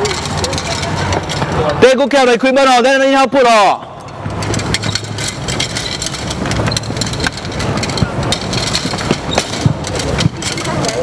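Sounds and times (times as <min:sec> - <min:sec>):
rackets clattering into a wicker basket: 0:04.0 - 0:11.0.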